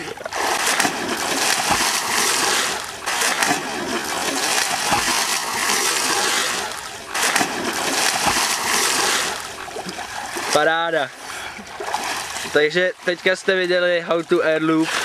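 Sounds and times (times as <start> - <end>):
water splashing and churning: 0.0 - 15.0
kayak slapping down on water: 0.2 - 10.6.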